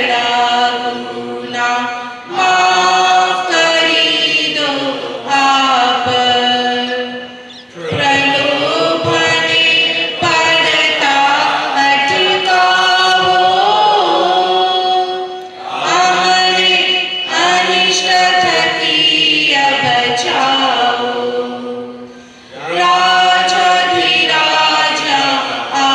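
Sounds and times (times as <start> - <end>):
voices singing a prayer song: 0.0 - 25.9.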